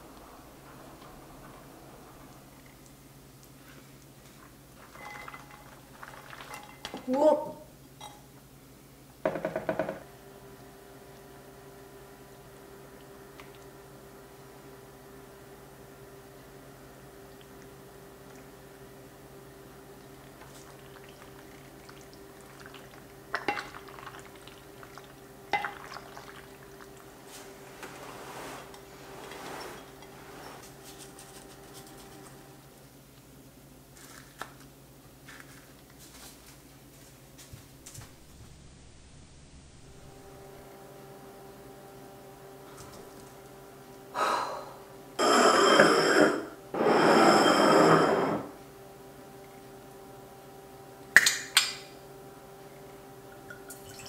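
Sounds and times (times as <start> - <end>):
wet squelches of pasta tossing: 2.7 - 6.8
woman exhaling breathily: 44.2 - 44.8.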